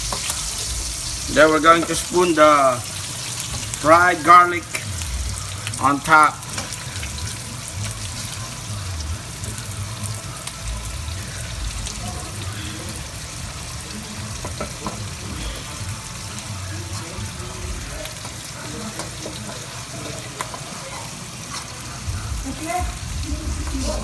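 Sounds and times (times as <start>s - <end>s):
scallops sizzling in butter: 0.0s - 24.0s.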